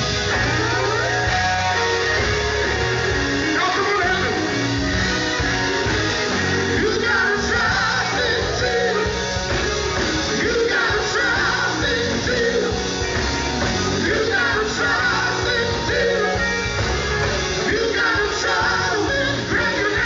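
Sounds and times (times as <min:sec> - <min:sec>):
men singing with band: 0:06.3 - 0:20.0.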